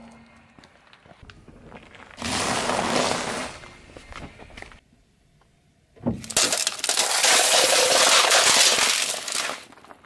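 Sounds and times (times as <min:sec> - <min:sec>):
plastic cups crackling and splitting: 0:06.0 - 0:10.0
candies scattering with clatter: 0:06.2 - 0:10.0.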